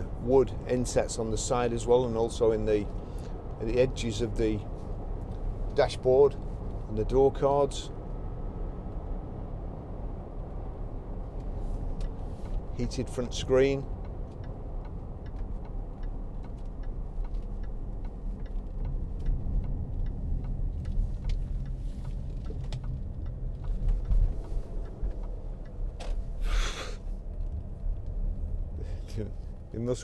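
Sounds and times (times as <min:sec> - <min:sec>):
engine and road rumble: 0:00.0 - 0:30.0
faint regular ticking: 0:11.2 - 0:26.4.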